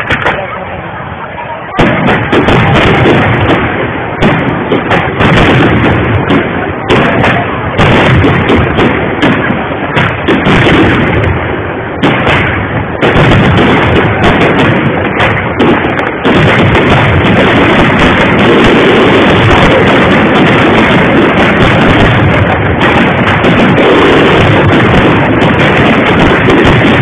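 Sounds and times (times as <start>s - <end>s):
fireworks bangs: 0.0s - 27.0s.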